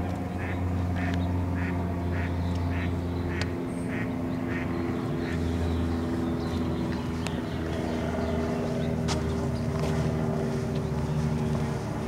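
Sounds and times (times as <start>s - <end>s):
low hum: 0.0s - 12.0s
duck quacking: 0.4s - 5.4s.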